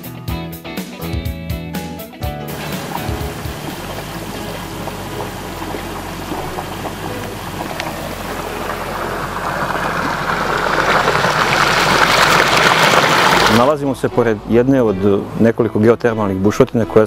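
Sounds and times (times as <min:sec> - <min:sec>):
hot water rushing from outlet: 0:02.5 - 0:13.8.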